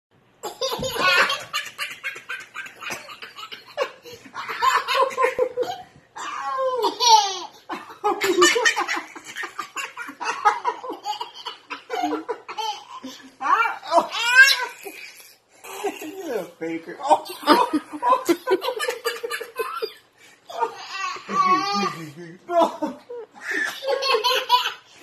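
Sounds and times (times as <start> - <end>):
toddler laughing: 0.4 - 5.9.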